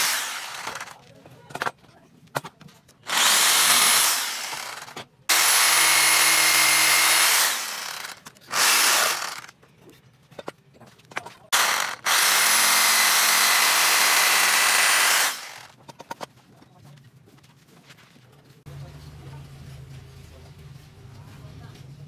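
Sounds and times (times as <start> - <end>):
jigsaw cutting wood: 0.0 - 1.0, 3.1 - 9.5, 11.5 - 15.7.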